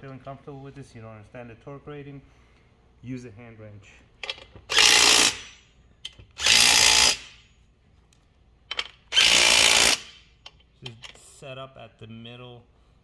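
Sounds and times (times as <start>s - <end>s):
impact driver running bolts: 4.2s - 5.5s, 6.1s - 7.4s, 8.7s - 10.6s.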